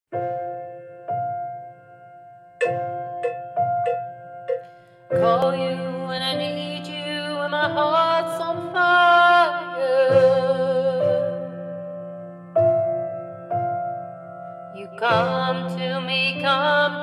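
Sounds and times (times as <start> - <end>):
held keyboard chord: 2.6 - 5.0
person singing a slow ballad: 5.2 - 11.7, 14.7 - 17.0.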